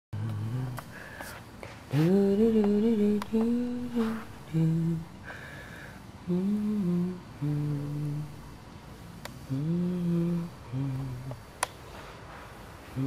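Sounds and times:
person humming a slow tune: 0.2s - 1.1s, 1.9s - 5.5s, 6.2s - 8.5s, 9.4s - 11.5s.

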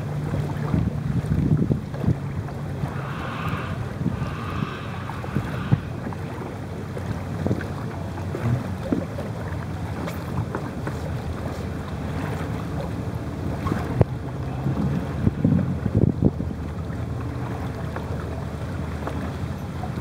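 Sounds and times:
low rumble on open water: 0.0s - 20.0s
wind buffeting microphone: 0.8s - 7.2s.

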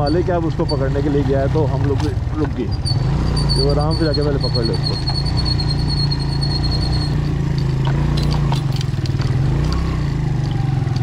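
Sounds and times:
motorcycle engine running: 0.0s - 11.0s
sharp clicks and knocks: 1.7s - 2.6s, 7.1s - 11.0s.

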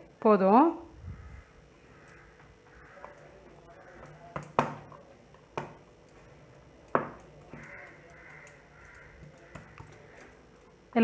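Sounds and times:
stone pestle knocking on wooden board: 7.0s - 7.2s.

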